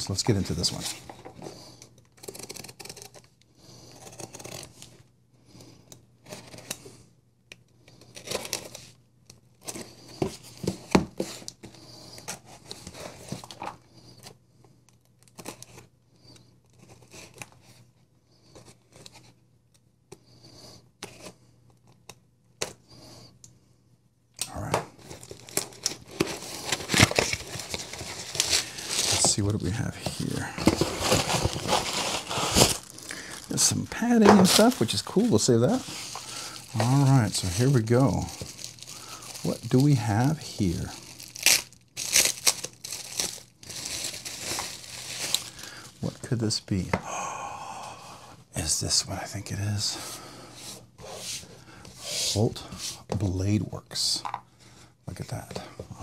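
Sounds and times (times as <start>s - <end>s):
knife slitting packing tape: 2.2s - 3.2s
bubble wrap crinkling: 25.1s - 46.1s.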